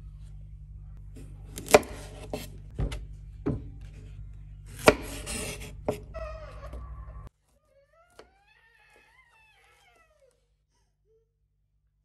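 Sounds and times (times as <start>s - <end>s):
knife scraping through zucchini: 1.6s - 2.6s, 4.7s - 6.1s.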